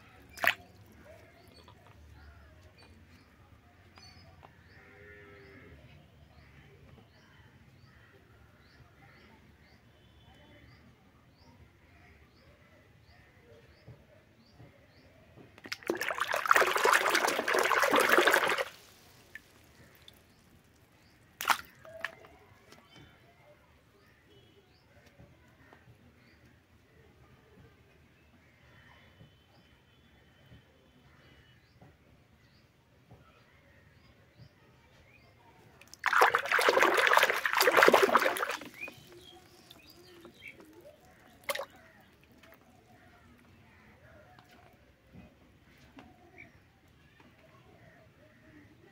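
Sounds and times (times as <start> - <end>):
toy splashing in water: 0.2 - 1.6, 15.6 - 22.3, 35.8 - 42.5
water dripping: 0.3 - 1.0, 15.6 - 22.3, 35.8 - 42.6.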